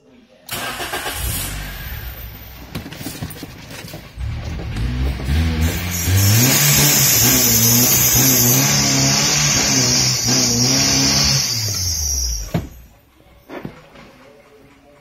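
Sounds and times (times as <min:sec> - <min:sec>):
car engine running: 0:04.2 - 0:12.9.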